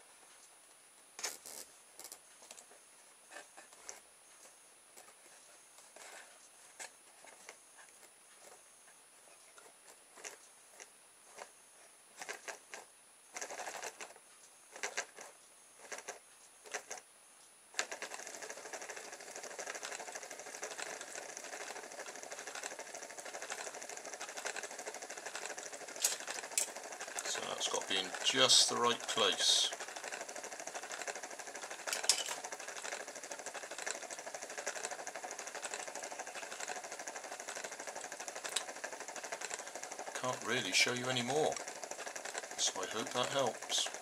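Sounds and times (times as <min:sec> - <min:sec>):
homemade motor clicking and buzzing: 0:01.2 - 0:02.7, 0:09.3 - 0:11.5, 0:12.2 - 0:17.0, 0:17.7 - 0:44.0.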